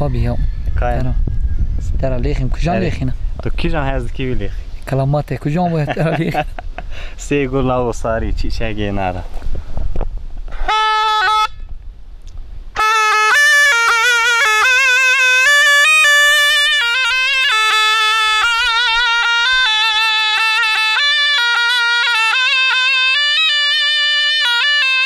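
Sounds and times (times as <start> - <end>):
double-reed shawm melody: 10.6 - 11.8, 12.7 - 25.0.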